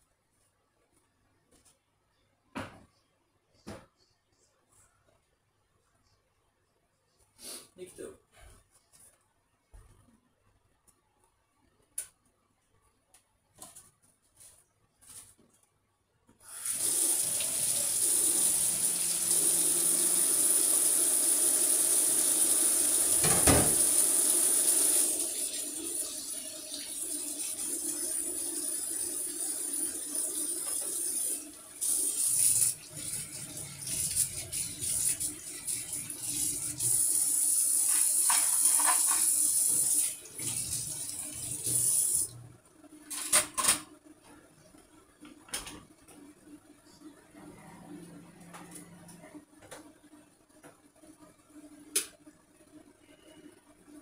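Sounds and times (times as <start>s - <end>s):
utensils being washed: 16.5s - 42.4s.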